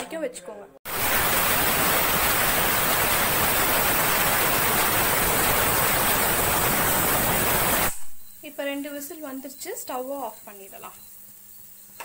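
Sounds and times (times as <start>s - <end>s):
pressure cooker whistling: 3.1s - 8.6s, 9.3s - 12.0s.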